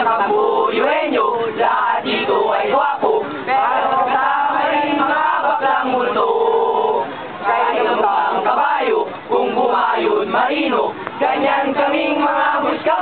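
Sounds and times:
group chanting and singing: 0:00.0 - 0:13.0.

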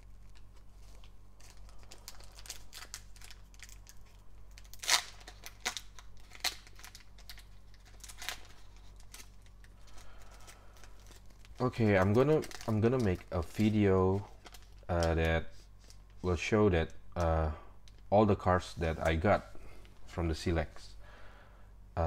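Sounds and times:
foil wrapper crinkling: 0:00.0 - 0:16.3.

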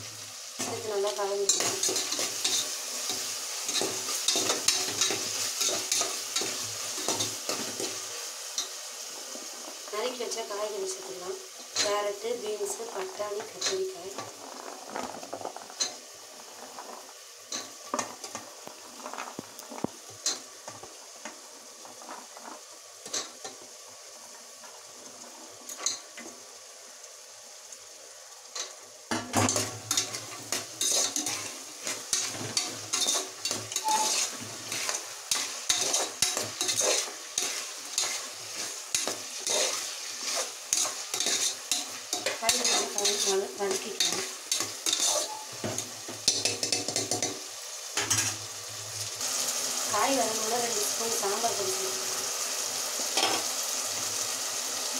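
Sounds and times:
vegetables sizzling in oil: 0:00.0 - 0:54.9
metal spoon scraping pot: 0:29.4 - 0:45.6.

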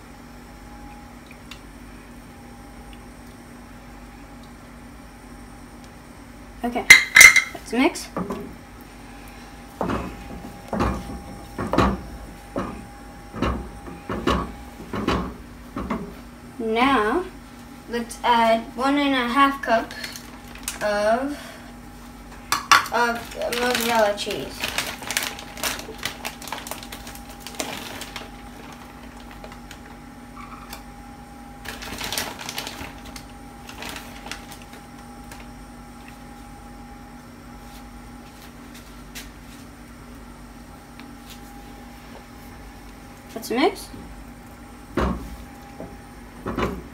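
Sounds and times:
steady low hum: 0:00.0 - 0:46.9
cheese rustling in plastic bag: 0:19.7 - 0:21.4, 0:22.9 - 0:30.1, 0:31.6 - 0:35.6.

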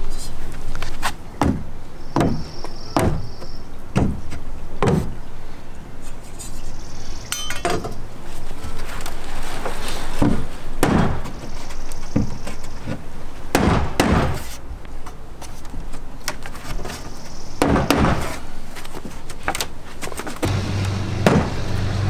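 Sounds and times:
hammer driving nails into wood: 0:13.6 - 0:14.5, 0:17.6 - 0:18.4.

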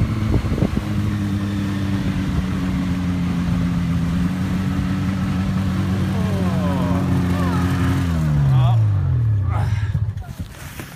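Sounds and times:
snowmobile engine running: 0:00.0 - 0:10.9.

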